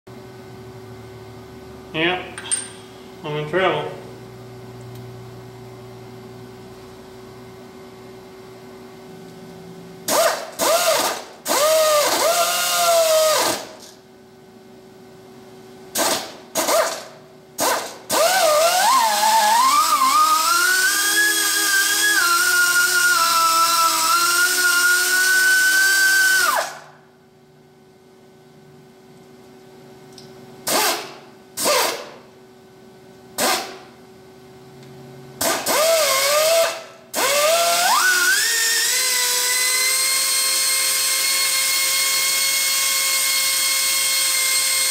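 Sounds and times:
low machine hum: 0:00.1 - 0:20.6, 0:26.4 - 0:35.6
power drill whining: 0:10.1 - 0:13.7, 0:17.6 - 0:26.8, 0:35.4 - 0:44.9.

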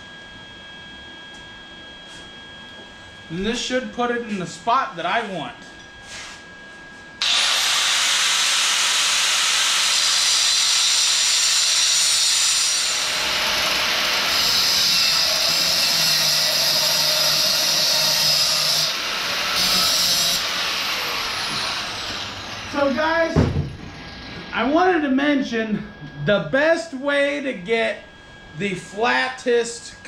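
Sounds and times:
angle grinder cutting steel: 0:07.2 - 0:23.0.

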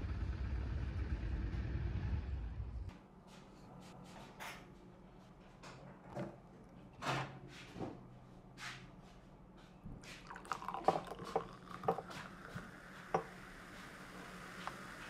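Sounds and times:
drink fizzing: 0:10.2 - 0:15.0.

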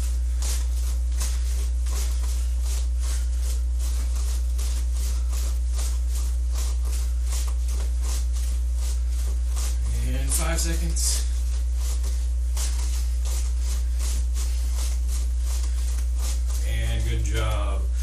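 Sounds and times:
punch swishes and foot scuffs: 0:00.0 - 0:17.7
loud steady low hum: 0:00.0 - 0:18.0.

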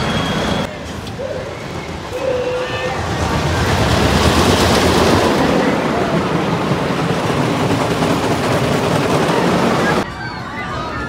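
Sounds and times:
rushing noise: 0:00.0 - 0:10.1
roller coaster rumbling on track: 0:00.0 - 0:11.0.

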